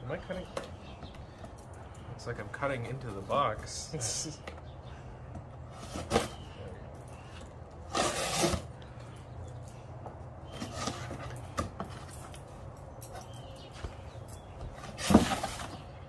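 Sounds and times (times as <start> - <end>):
knife ripping packing tape: 7.9 - 8.7.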